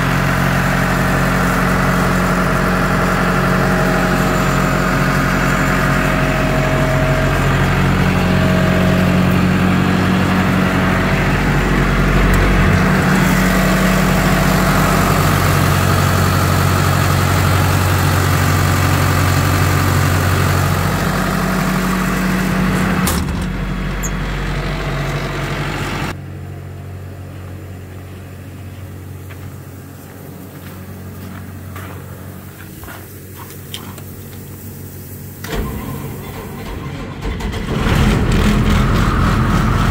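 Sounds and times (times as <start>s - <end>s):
diesel engine running: 0.0s - 39.9s
screw compressor running: 1.5s - 23.1s.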